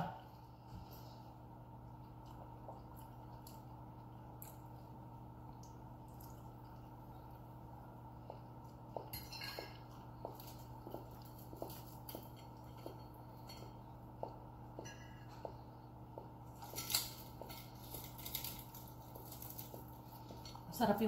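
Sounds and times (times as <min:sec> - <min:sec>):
low hum: 0:00.0 - 0:21.0
person chewing: 0:01.8 - 0:20.6
cutlery clinking on plates: 0:09.0 - 0:09.9.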